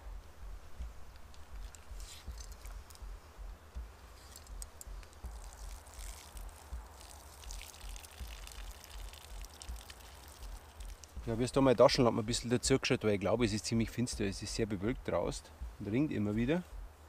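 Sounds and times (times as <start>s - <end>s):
water trickling and dripping from pot: 4.3s - 11.6s.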